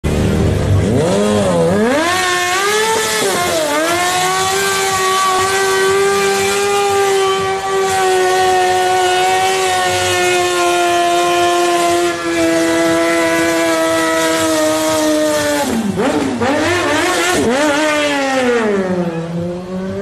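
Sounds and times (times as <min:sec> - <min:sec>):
motorcycle engine revving: 0:00.0 - 0:20.0.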